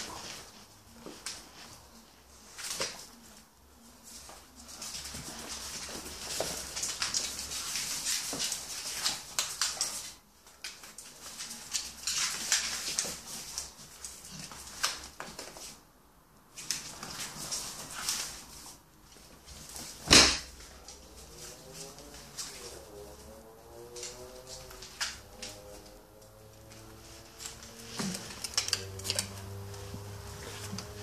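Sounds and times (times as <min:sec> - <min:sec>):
dogs scuffling: 0:00.0 - 0:31.0
claws clicking on hard floor: 0:05.0 - 0:15.8.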